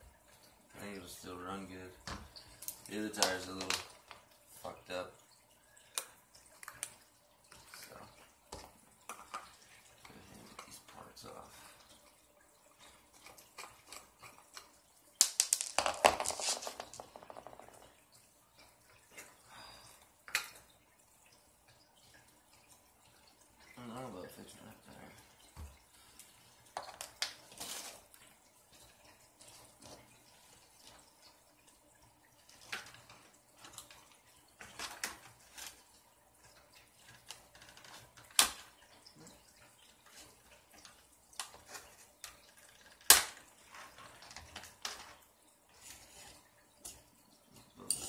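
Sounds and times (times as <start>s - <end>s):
small parts and tools clattering: 2.1s - 4.2s, 13.2s - 18.0s, 26.7s - 28.1s, 34.6s - 35.9s, 40.0s - 45.2s.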